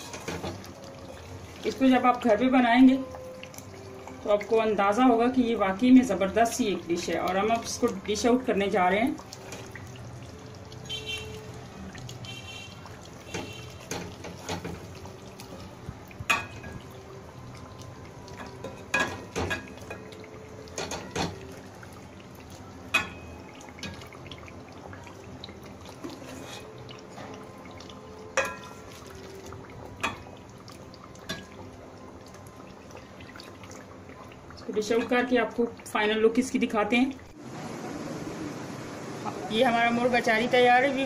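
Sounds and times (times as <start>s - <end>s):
wet slopping of gravy: 9.2s - 34.2s.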